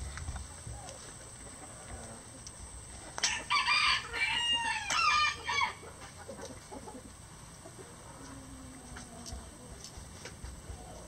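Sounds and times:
rooster crowing: 3.2 - 5.8.

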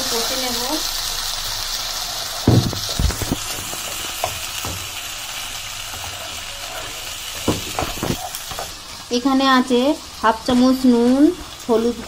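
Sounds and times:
paste sizzling in oil: 0.0 - 12.0
spatula knocks: 2.5 - 4.9, 7.4 - 8.2.

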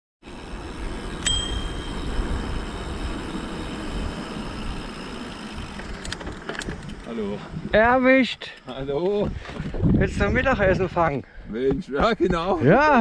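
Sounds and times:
wind and tyre rumble: 0.2 - 13.0
bicycle bell ding: 1.2 - 2.8.

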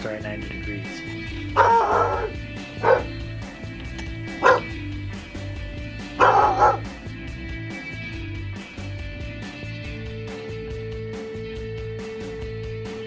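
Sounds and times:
background music: 0.0 - 13.0
dog barking: 1.4 - 3.2, 4.2 - 4.8, 6.1 - 7.0.

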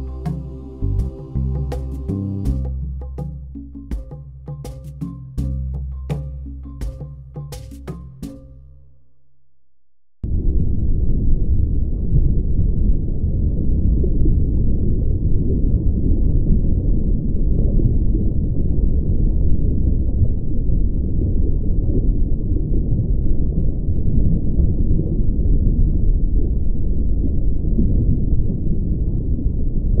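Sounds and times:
muffled low rumbling: 0.0 - 8.9, 10.2 - 30.0.

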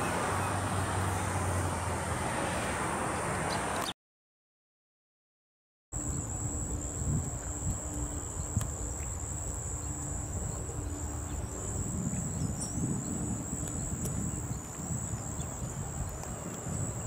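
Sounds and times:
high-pitched insect buzz: 6.0 - 17.0.

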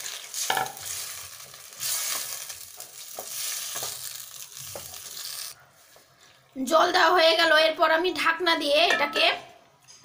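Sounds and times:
water sizzling in a hot pan: 0.0 - 5.6.

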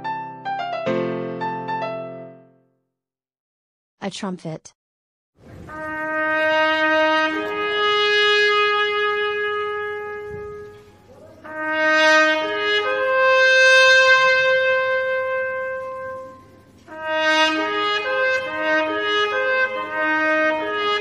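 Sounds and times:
trumpet playing slow melody: 5.5 - 21.0.

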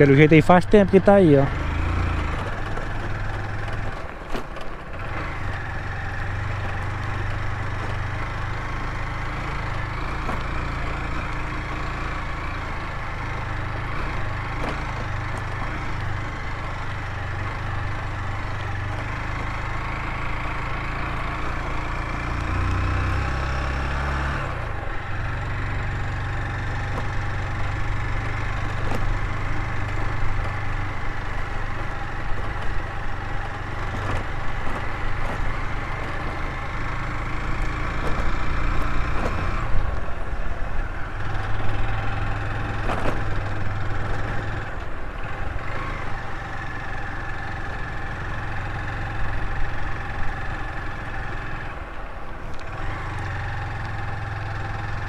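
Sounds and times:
motorcycle engine running: 0.0 - 55.0
sharp knocks from rough road: 1.7 - 12.2, 13.8 - 40.1, 41.3 - 46.8.

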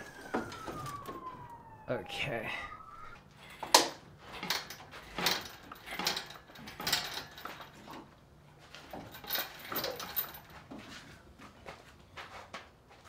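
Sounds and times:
metal tools clinking: 4.3 - 10.6.

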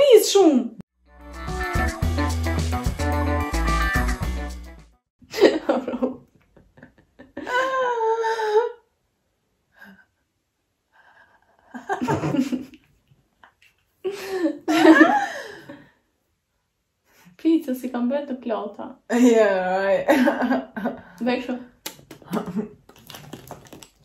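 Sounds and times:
background music: 1.0 - 5.0
women laughing: 11.8 - 12.8, 14.1 - 15.8.

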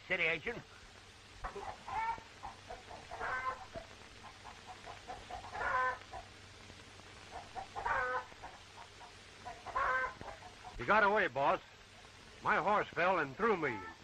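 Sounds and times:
chickens clucking: 1.4 - 11.1.

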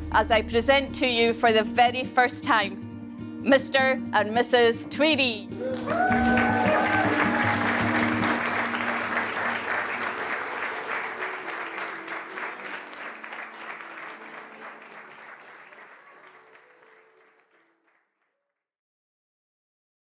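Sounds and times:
music playing: 0.0 - 17.9
crowd applauding: 5.6 - 18.2.

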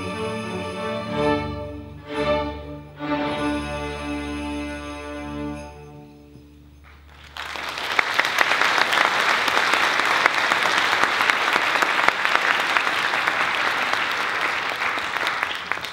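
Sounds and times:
audience applauding: 6.9 - 15.9.

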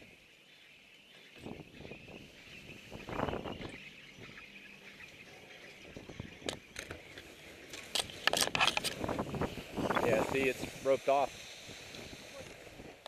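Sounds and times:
skis scraping over gravel: 7.0 - 13.0.

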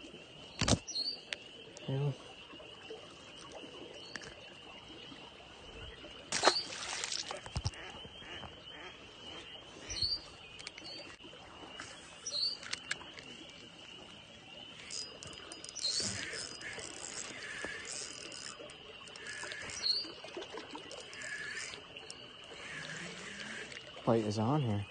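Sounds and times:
frogs calling: 0.0 - 24.9
handling clicks and rustles: 11.8 - 14.1.

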